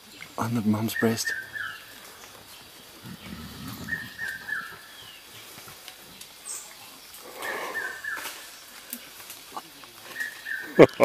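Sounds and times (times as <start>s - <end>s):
high bird chirps: 0.7s - 5.2s.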